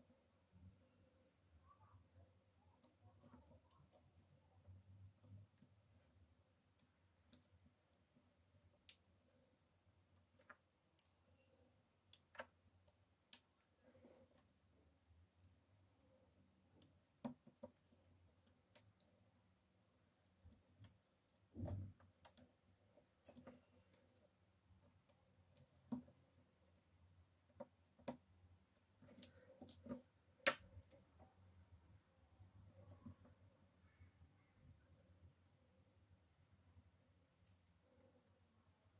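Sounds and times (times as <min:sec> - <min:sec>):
small clicks and taps of tools: 0:20.4 - 0:26.2, 0:27.5 - 0:31.2.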